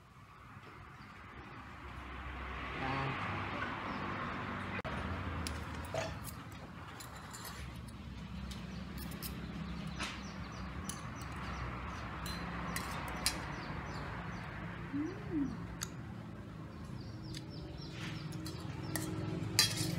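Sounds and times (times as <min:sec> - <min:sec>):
cutlery scraping a metal plate: 0:05.8 - 0:06.4, 0:07.0 - 0:08.0, 0:18.3 - 0:19.9.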